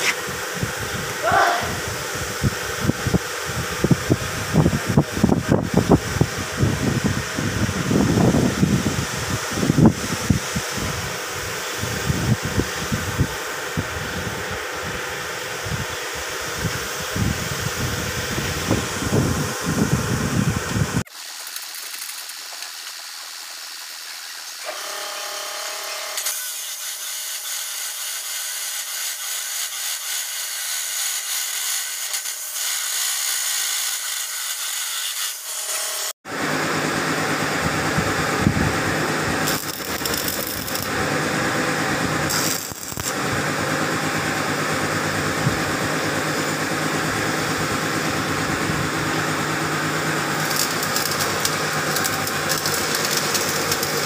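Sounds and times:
loud steady hissing: 0:00.0 - 0:54.0
chop saw high whine: 0:24.6 - 0:54.0.

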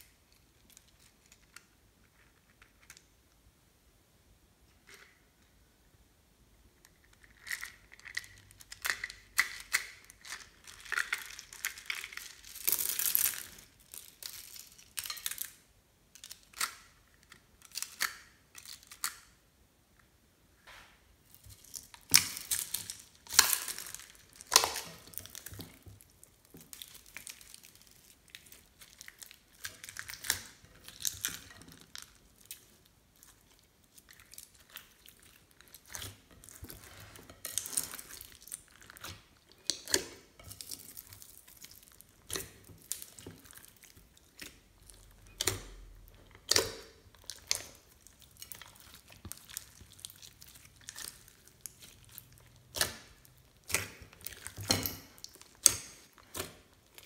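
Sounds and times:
sticky slime clicks and crackles: 0:21.4 - 0:36.8, 0:37.4 - 0:57.0.

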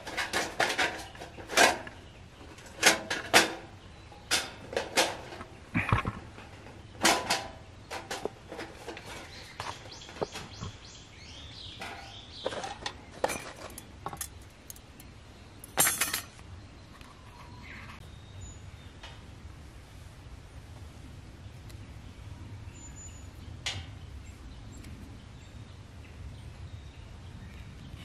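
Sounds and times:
camping gear knocks and clicks: 0:00.0 - 0:10.8, 0:11.6 - 0:14.9, 0:15.6 - 0:16.4
scraping: 0:00.0 - 0:10.9, 0:11.6 - 0:14.8.

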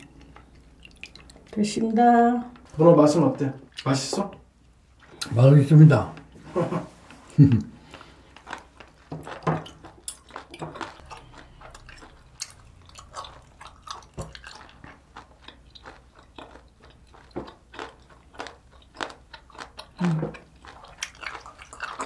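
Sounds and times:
chewing with wet mouth noises: 0:00.0 - 0:01.6, 0:07.8 - 0:22.0.

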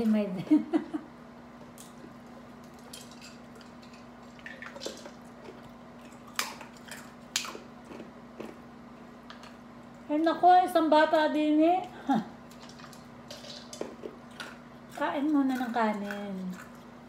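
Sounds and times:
chewing: 0:01.8 - 0:08.6, 0:12.4 - 0:17.0.

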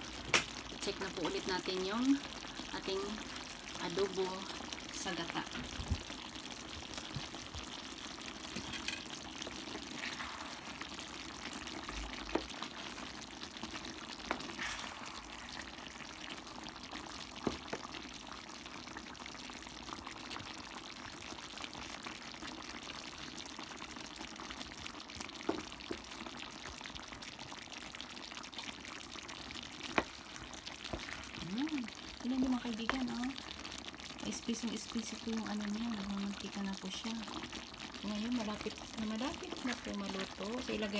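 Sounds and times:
stew sizzling in pan: 0:00.0 - 0:40.9.

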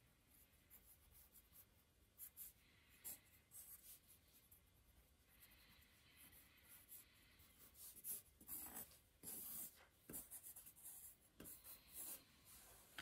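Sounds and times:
pen scratching on paper: 0:06.2 - 0:12.6.

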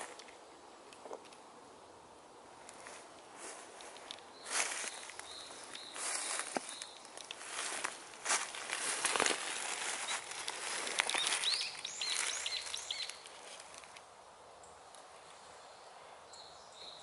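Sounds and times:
brush and twigs rustling: 0:00.0 - 0:01.5, 0:02.4 - 0:14.1
bird chirping: 0:04.2 - 0:07.8, 0:09.7 - 0:13.8, 0:14.6 - 0:17.0.

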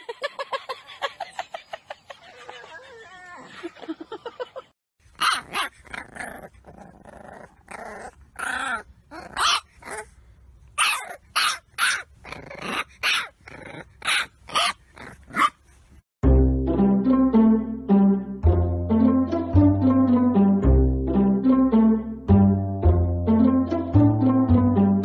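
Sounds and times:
puppy barking and growling: 0:05.1 - 0:15.9.

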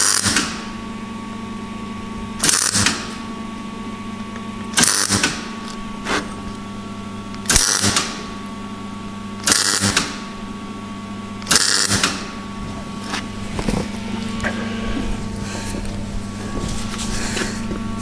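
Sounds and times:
welder bursts: 0:00.0 - 0:00.7, 0:02.4 - 0:03.2, 0:04.7 - 0:06.3, 0:07.4 - 0:08.4, 0:09.4 - 0:10.3, 0:11.4 - 0:12.4
steady hum: 0:00.0 - 0:18.0.

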